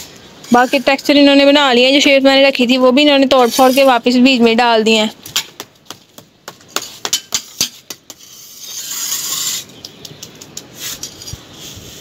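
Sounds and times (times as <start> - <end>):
trowel scraping floor: 3.4 - 3.9, 7.5 - 9.7, 10.7 - 12.0.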